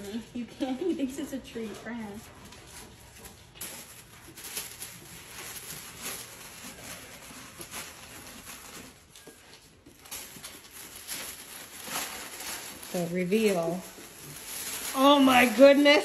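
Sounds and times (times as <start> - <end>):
paper crinkling and tearing: 2.1 - 16.0.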